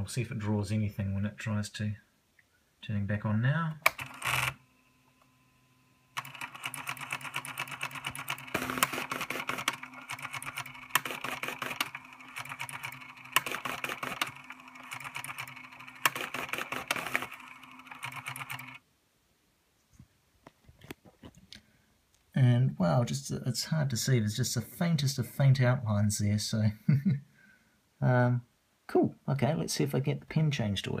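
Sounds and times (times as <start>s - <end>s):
plotter motors buzzing and rattling: 6.2s - 18.8s.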